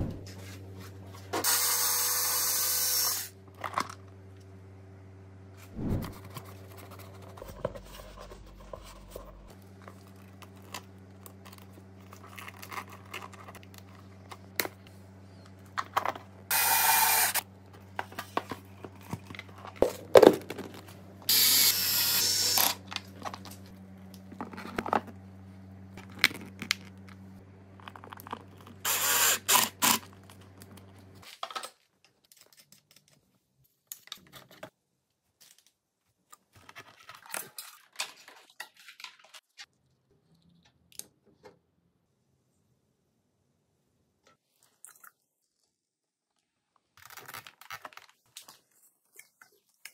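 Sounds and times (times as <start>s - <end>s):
power drill-driver running: 1.4s - 3.4s, 16.5s - 17.4s, 21.3s - 22.8s, 28.8s - 30.1s.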